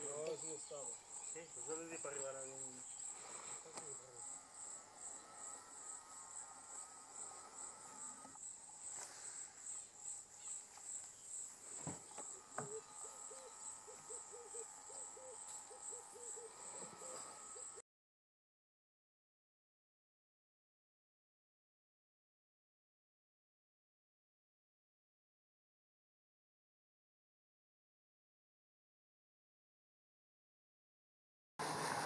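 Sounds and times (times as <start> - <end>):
crickets trilling: 0.0 - 17.8.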